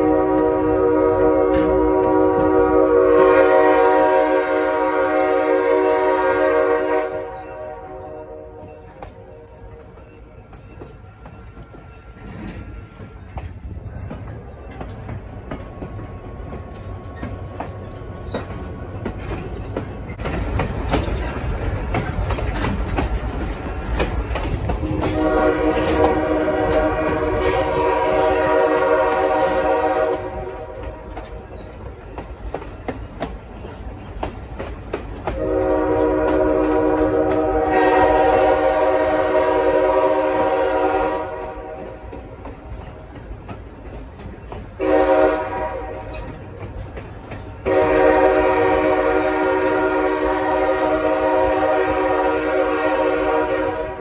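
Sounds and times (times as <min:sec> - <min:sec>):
train air horn blasts: 0:00.0 - 0:08.8, 0:24.7 - 0:31.3, 0:35.3 - 0:42.2, 0:44.8 - 0:46.3, 0:47.6 - 0:54.0
train running rumble: 0:00.0 - 0:54.0
wheel clatter on rails: 0:07.3 - 0:37.5, 0:41.7 - 0:44.8, 0:45.6 - 0:47.8.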